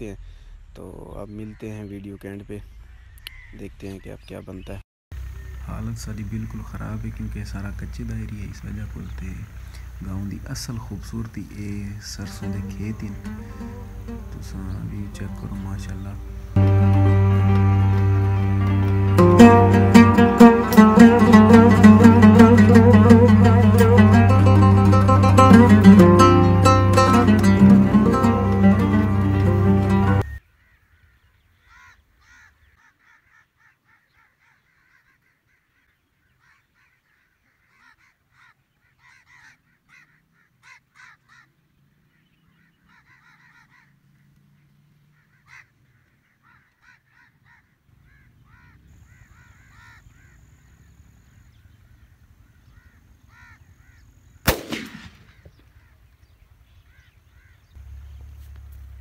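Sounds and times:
birds chirping: 0.0 - 59.0
shotgun shot with echo: 54.4 - 55.6.

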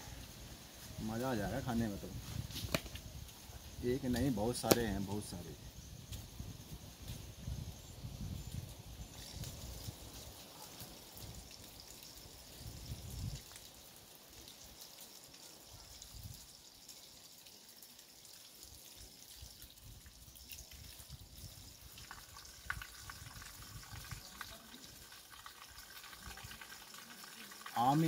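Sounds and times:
water trickling from tap: 9.2 - 28.0.

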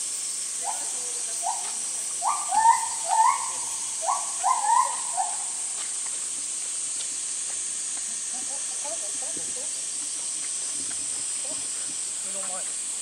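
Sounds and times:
high insect drone: 0.0 - 13.0
bird short calls: 2.2 - 5.6.

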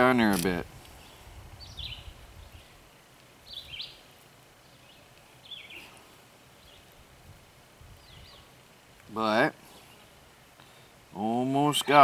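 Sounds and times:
faint outdoor background noise: 0.0 - 12.0
bird chirping: 1.0 - 6.0, 8.0 - 8.6.

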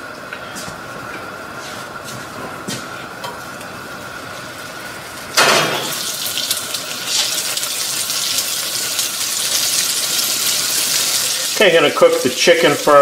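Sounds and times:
chicken sizzling in oil: 4.4 - 13.0.

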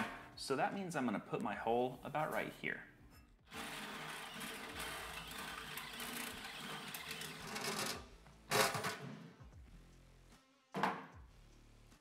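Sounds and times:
cordless drill boring through steel: 3.5 - 7.9.

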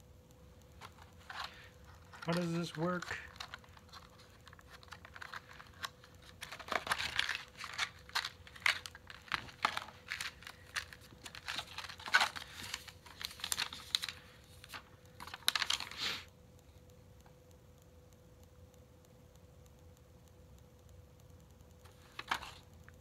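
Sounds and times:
faint steady hum: 0.0 - 23.0
paper and cardboard crinkling: 0.8 - 16.3, 21.9 - 22.6.

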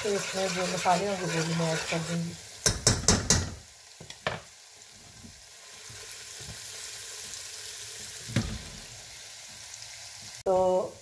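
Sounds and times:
sizzling in hot oil: 0.0 - 11.0
metal spoon knocking on pot: 2.6 - 3.6.

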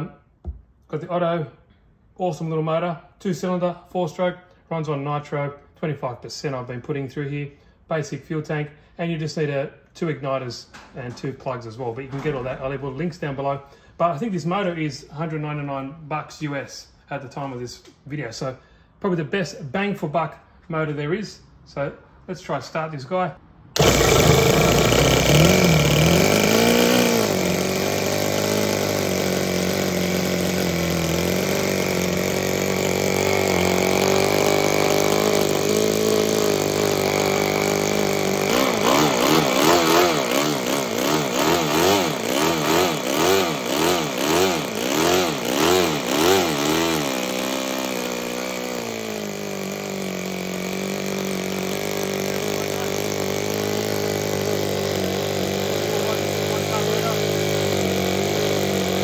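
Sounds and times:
model engine revving: 23.8 - 59.0.

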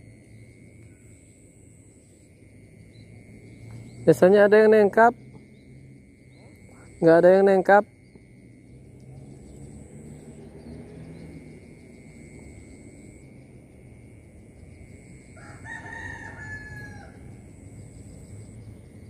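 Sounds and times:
thin high whine: 0.0 - 10.6, 11.2 - 19.0
steady low rumble: 7.9 - 15.7
rooster crowing: 15.2 - 18.0.

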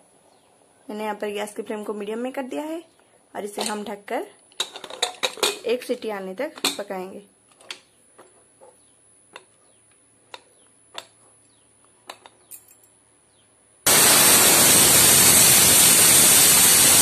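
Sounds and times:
pressure cooker steam hiss: 13.9 - 17.0.

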